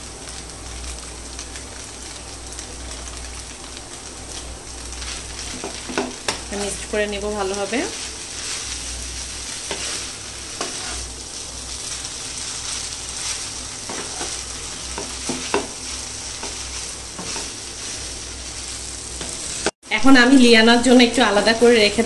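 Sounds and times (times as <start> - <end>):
food sizzling in a pan: 0.0 - 22.0
spatula scraping a pan: 7.6 - 19.7.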